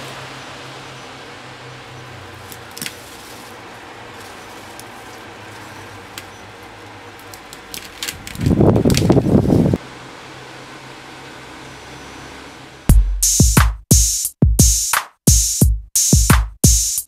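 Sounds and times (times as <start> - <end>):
steady low hum: 0.0 - 13.6
celery stalks snapping: 2.4 - 9.4.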